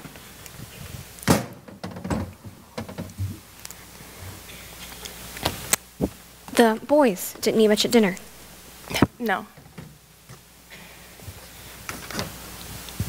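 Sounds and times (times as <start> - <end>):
door thunking shut: 1.3 - 3.4.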